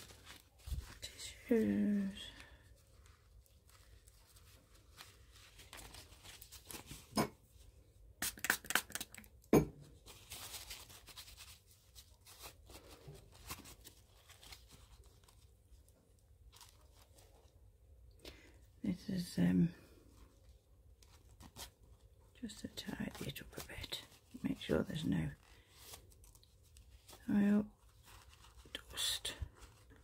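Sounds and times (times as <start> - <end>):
tissue paper ripping: 0.0 - 7.1, 10.0 - 15.7, 21.0 - 24.7
tissues rustling: 0.0 - 9.4, 10.0 - 30.0.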